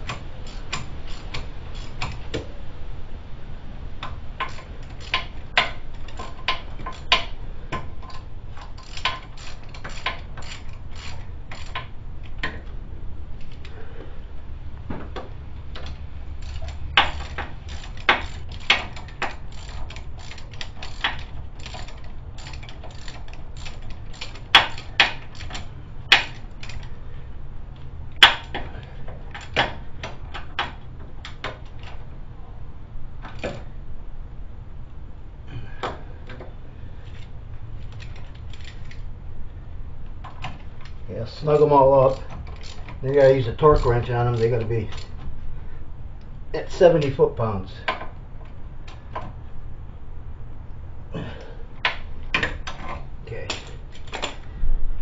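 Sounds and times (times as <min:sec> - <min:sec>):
socket ratchet clicking: 0:00.0 - 0:02.4, 0:04.0 - 0:12.5, 0:15.7 - 0:27.0, 0:37.2 - 0:39.1, 0:40.3 - 0:45.2
metal clacks of tool on hub: 0:00.0 - 0:02.5, 0:04.0 - 0:12.8, 0:15.0 - 0:27.0, 0:27.8 - 0:32.0, 0:33.2 - 0:33.7, 0:35.8 - 0:39.1, 0:40.2 - 0:45.3, 0:51.2 - 0:54.4.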